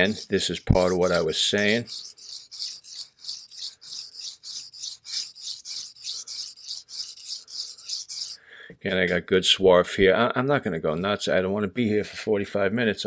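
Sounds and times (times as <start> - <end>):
blade rasping on wet whetstone: 0.0 - 8.4.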